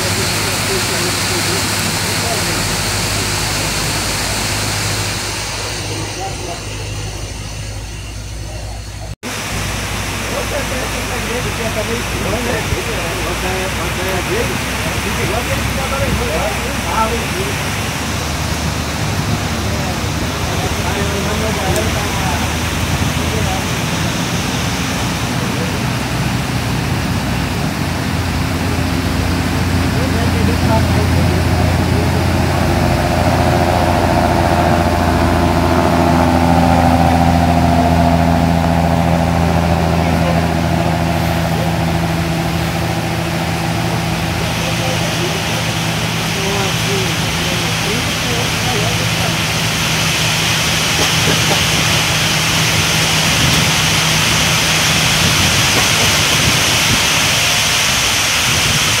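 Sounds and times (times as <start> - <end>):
boat engines droning: 0.0 - 59.0
heavy rain hissing: 0.0 - 59.0.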